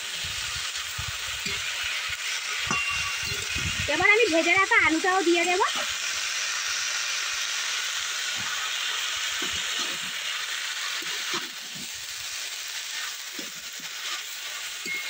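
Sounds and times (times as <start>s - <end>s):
vegetables sizzling in a pan: 0.0s - 15.0s
metal spatula scraping: 1.4s - 3.7s, 9.4s - 11.9s, 12.8s - 15.0s.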